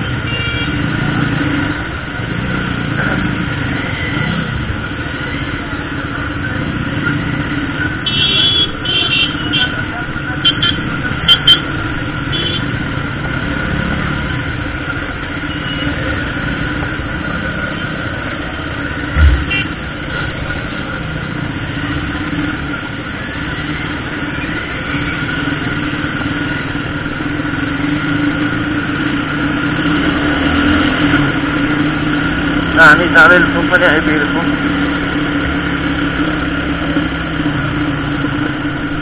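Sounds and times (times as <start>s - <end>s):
loud thump: 19.1s - 19.7s.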